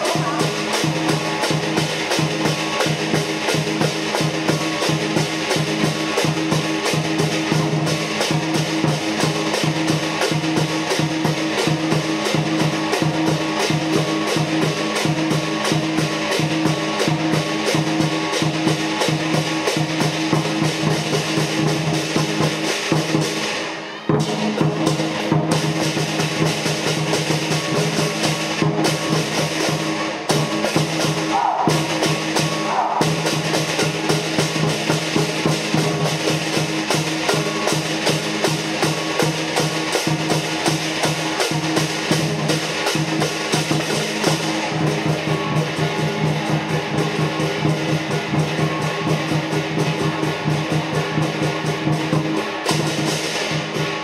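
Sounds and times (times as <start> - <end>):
big drum beating fast rhythm: 0.0 - 54.0
cymbals clashing: 0.0 - 54.0.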